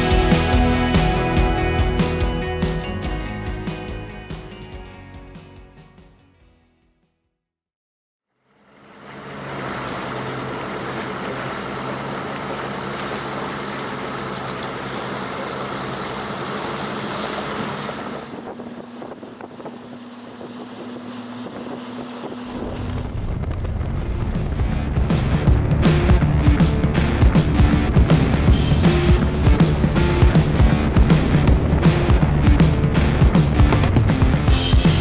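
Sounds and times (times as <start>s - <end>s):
boat engine drone: 0.0s - 4.0s, 8.3s - 35.0s
wind: 8.3s - 33.8s
rushing water: 8.4s - 35.0s.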